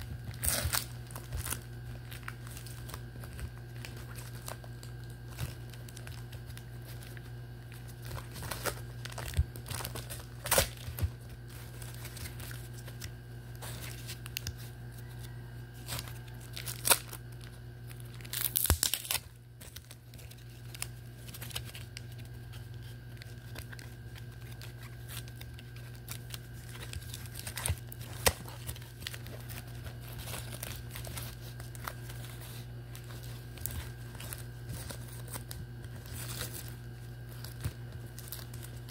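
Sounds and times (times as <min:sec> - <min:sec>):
plastic wrapping crinkling: 0:00.0 - 0:38.9
steady low hum: 0:00.0 - 0:38.9.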